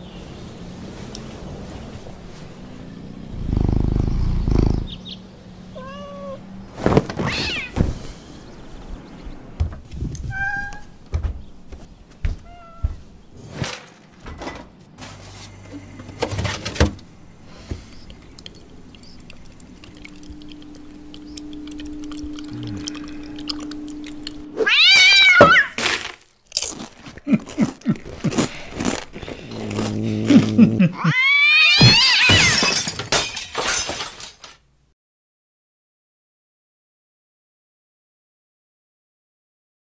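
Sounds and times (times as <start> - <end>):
cat meowing: 5.7 - 6.4, 7.2 - 7.8, 10.3 - 11.0, 12.4 - 13.0, 24.6 - 25.8, 31.0 - 32.5
thumps and knocks: 9.6 - 10.2, 11.0 - 14.8.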